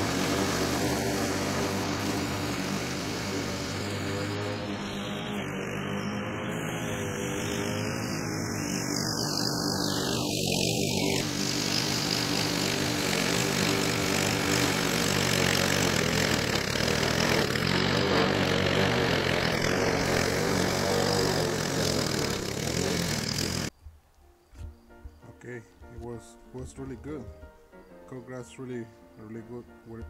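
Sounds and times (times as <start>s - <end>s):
push lawn mower cutting grass: 0.0s - 23.7s.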